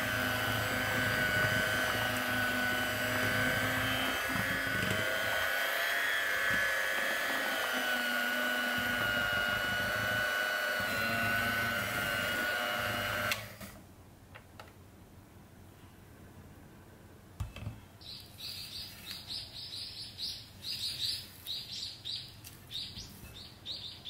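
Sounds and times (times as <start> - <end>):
electric hand mixer whining: 0.0 - 13.8.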